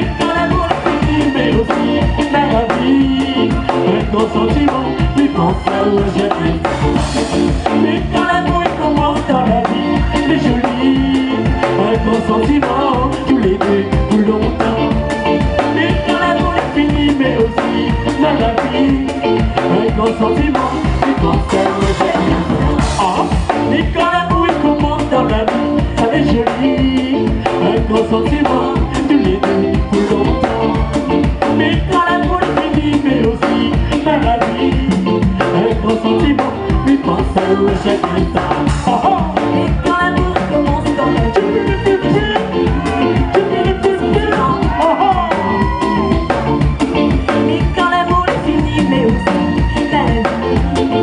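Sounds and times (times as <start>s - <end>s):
live band playing: 0.0s - 51.0s
people singing: 0.0s - 51.0s.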